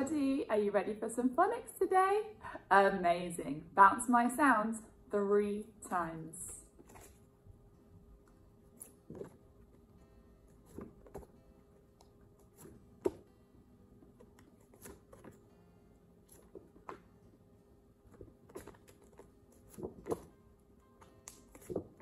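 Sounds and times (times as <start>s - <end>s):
flashcards tapping and rustling: 6.8s - 7.2s, 8.3s - 9.9s, 10.5s - 11.4s, 14.0s - 15.5s, 16.3s - 17.3s, 18.0s - 22.0s.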